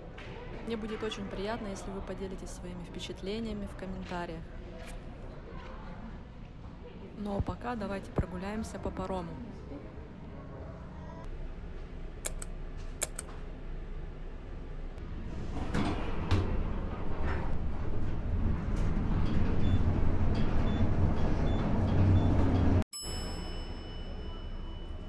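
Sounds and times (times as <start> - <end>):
lift car rumbling: 15.0 - 22.8.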